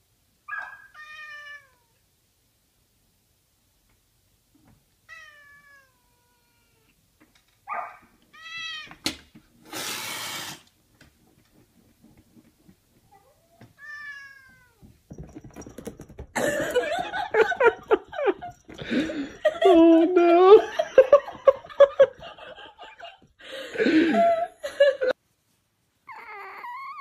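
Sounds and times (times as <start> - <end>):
cat meowing: 0.5 - 2.0, 5.0 - 6.9, 7.8 - 9.0, 13.1 - 14.9, 26.1 - 27.0.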